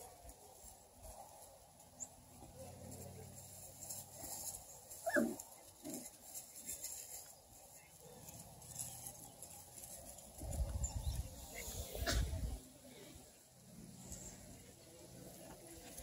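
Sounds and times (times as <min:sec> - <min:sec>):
puppy yelp: 0:05.0 - 0:05.4.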